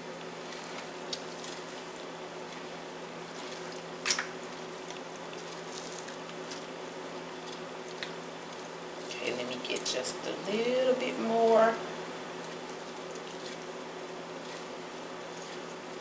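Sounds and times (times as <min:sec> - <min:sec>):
steady low hum: 0:00.0 - 0:16.0
wet squishing of meat tearing: 0:00.3 - 0:09.1, 0:12.4 - 0:16.0.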